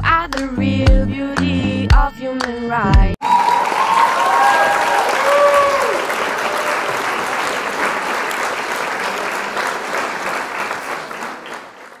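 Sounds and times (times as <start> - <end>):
audience applause: 3.2 - 12.0.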